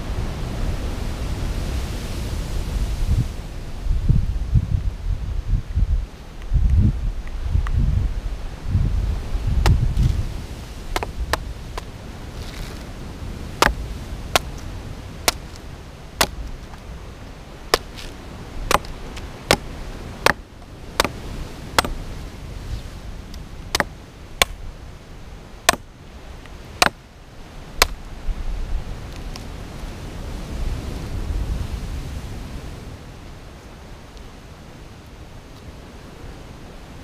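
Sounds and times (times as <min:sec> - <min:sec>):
wind rumble on microphone: 0:00.0 - 0:37.0
machete chopping coconut husk: 0:10.9 - 0:11.9, 0:13.6 - 0:15.6, 0:16.2 - 0:16.5, 0:17.7 - 0:22.1, 0:23.7 - 0:24.6, 0:25.7 - 0:25.9, 0:26.8 - 0:27.0, 0:27.8 - 0:28.0.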